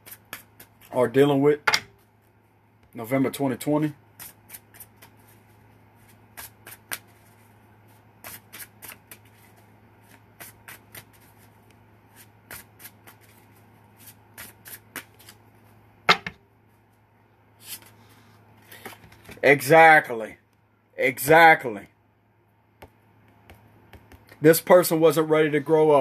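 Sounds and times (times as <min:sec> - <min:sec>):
cards being shuffled: 0:00.0 - 0:01.0, 0:04.1 - 0:15.8, 0:18.7 - 0:19.4
slap of cards: 0:06.4 - 0:07.1.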